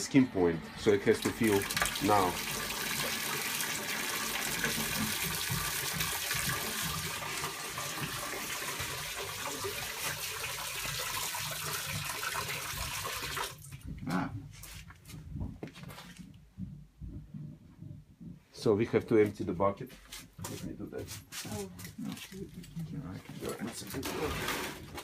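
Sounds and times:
water rushing from hose into bucket: 0:00.0 - 0:13.8, 0:23.4 - 0:25.0.

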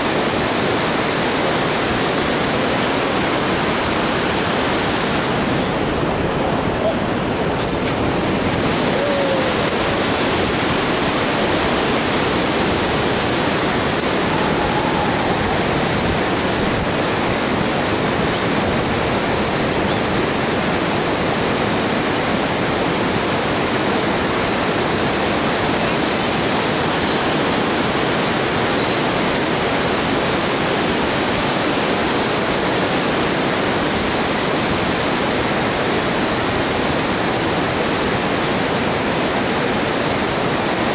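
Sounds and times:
whitewater river rushing: 0:00.0 - 0:40.9.

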